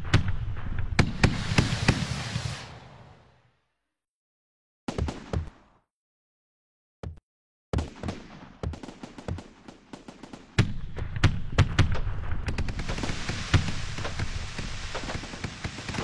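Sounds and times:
fireworks shells bursting: 0:01.0 - 0:02.8, 0:12.5 - 0:16.0
crackling hiss of fountains: 0:01.1 - 0:03.1, 0:12.5 - 0:16.0.

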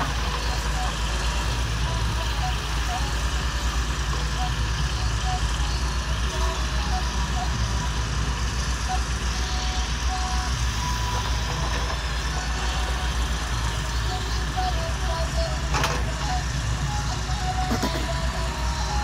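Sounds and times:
excavator diesel engine rumbling: 0:00.0 - 0:19.0.

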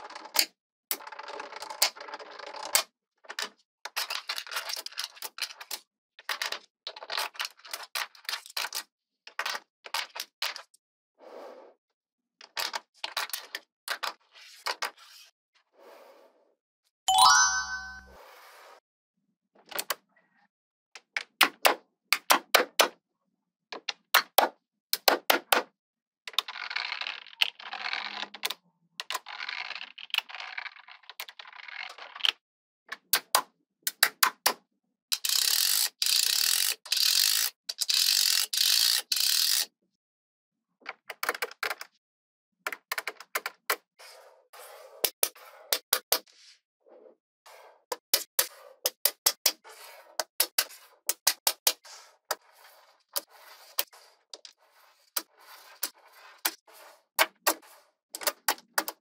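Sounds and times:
short chime: 0:17.1 - 0:18.2.

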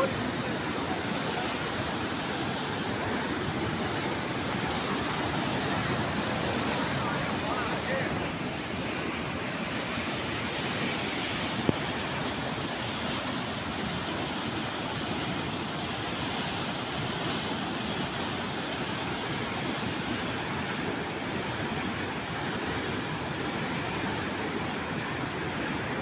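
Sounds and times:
water rushing from dam outlet: 0:00.0 - 0:26.0.

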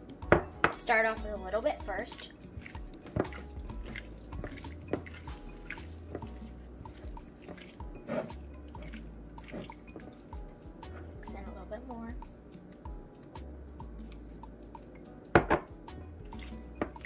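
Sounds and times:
wet squelches of raw chicken: 0:02.2 - 0:09.9.

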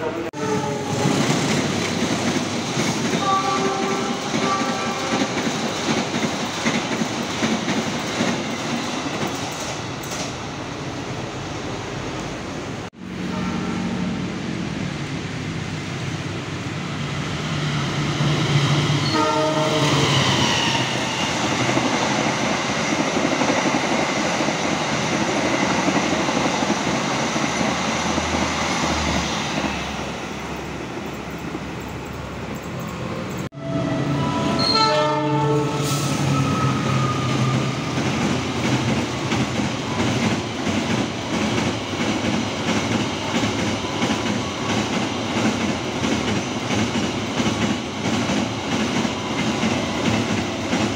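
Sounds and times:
train horn: 0:00.0 - 0:01.2, 0:03.1 - 0:05.4, 0:13.2 - 0:14.2, 0:19.0 - 0:20.8, 0:33.6 - 0:37.8
express train passing at speed: 0:00.0 - 0:50.9
train wheels clacking: 0:00.8 - 0:10.4.

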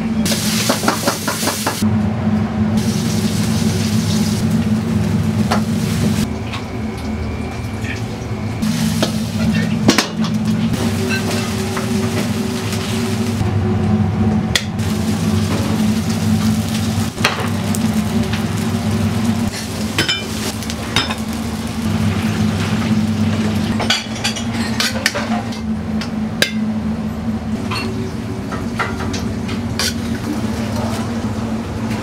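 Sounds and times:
low hum of burners: 0:00.0 - 0:32.0
food frying in wok: 0:02.8 - 0:07.4, 0:08.6 - 0:13.4, 0:14.8 - 0:24.2
ladle clinking and scraping wok: 0:10.6 - 0:12.2.

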